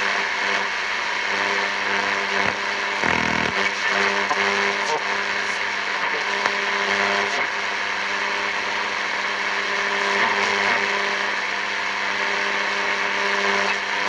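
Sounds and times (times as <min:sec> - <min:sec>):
radio static hiss: 0:00.0 - 0:14.0
low buzz: 0:03.0 - 0:03.6.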